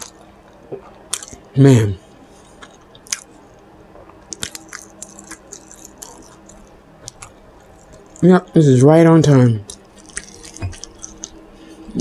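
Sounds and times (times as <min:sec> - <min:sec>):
lip and tongue clicks: 0:01.1 - 0:01.5, 0:02.6 - 0:03.3, 0:04.3 - 0:08.2, 0:09.6 - 0:11.4
wet open-mouthed chewing: 0:01.1 - 0:01.5, 0:02.4 - 0:03.4, 0:04.0 - 0:08.2, 0:09.6 - 0:12.0.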